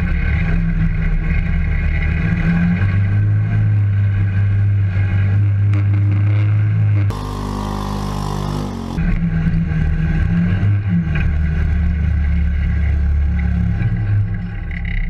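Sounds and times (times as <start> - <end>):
vehicle engine running: 6.8 - 10.5.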